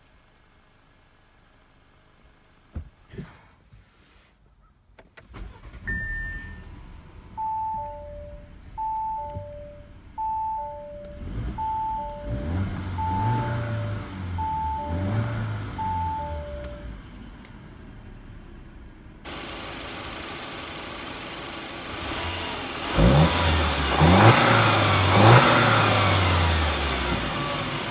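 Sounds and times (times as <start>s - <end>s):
car engine idling and revving: 5.3s - 27.9s
two-tone warning chime: 5.7s - 17.0s
single high chime: 5.9s - 6.8s.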